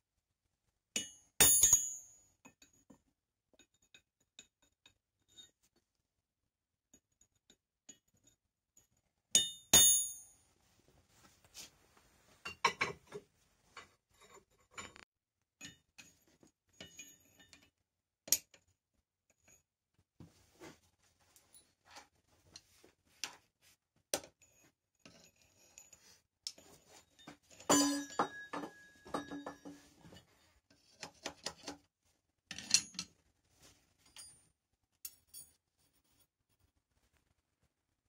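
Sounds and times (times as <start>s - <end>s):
steel clinking on anvil: 1.0s - 2.1s, 9.4s - 10.3s, 27.7s - 29.5s.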